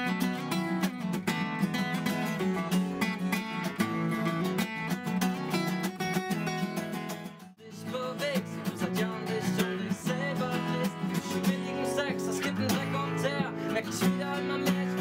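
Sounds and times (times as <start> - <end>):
acoustic guitar: 0.0 - 15.0
man singing: 7.6 - 15.0.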